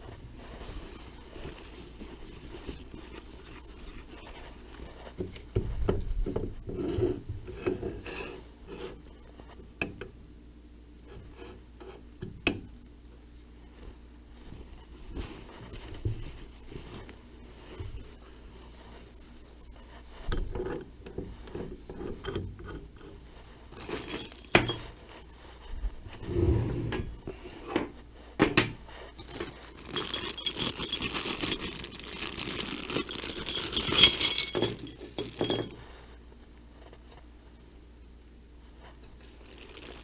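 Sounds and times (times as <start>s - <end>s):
metal parts knocking and scraping: 20.3s - 25.0s, 29.2s - 31.8s, 32.9s - 35.8s
plastic bag crinkling: 23.7s - 24.6s, 29.2s - 35.8s, 39.2s - 40.0s
small metal parts clinking: 23.7s - 24.9s, 29.2s - 35.8s.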